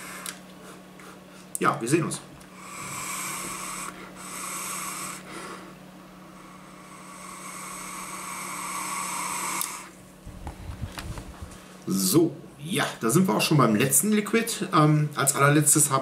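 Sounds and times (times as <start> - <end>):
e-cigarette hissing draw: 7.2 - 9.9.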